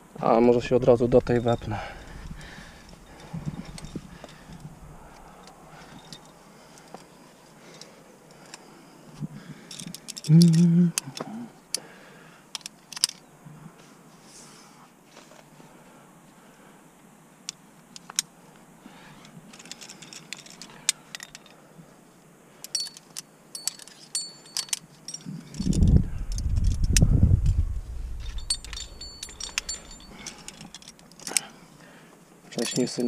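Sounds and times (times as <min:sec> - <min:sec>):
metal carabiners clinking: 0:00.9 - 0:07.0, 0:09.6 - 0:11.2, 0:19.5 - 0:21.6, 0:22.6 - 0:27.0, 0:27.7 - 0:31.6, 0:32.5 - 0:33.0
loud low rumble: 0:25.6 - 0:29.4.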